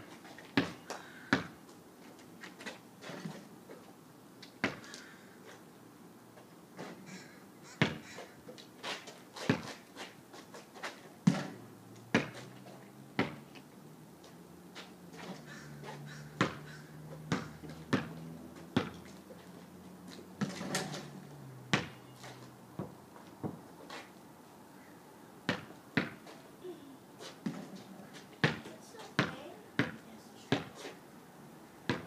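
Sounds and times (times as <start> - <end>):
basketball bouncing on pavement: 0.2 - 1.6, 4.6 - 5.1, 7.8 - 10.1, 10.8 - 13.6, 14.8 - 19.2, 20.1 - 24.0, 25.5 - 26.4, 27.2 - 30.9
ball striking backboard and rim: 7.8 - 8.1, 11.2 - 12.4, 13.2 - 13.4, 16.4 - 18.2, 20.4 - 21.1, 21.7 - 22.0, 25.5 - 26.2, 28.4 - 30.7.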